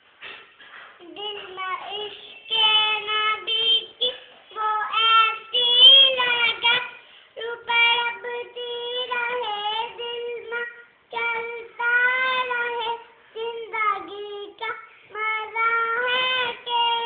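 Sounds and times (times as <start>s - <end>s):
boy singing unaccompanied: 1.0s - 17.0s.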